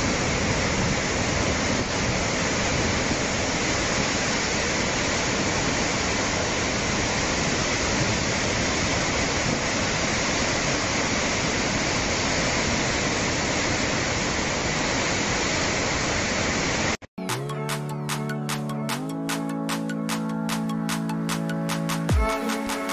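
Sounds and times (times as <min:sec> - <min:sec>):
floodwater rushing: 0:00.0 - 0:17.0
music: 0:17.2 - 0:22.9.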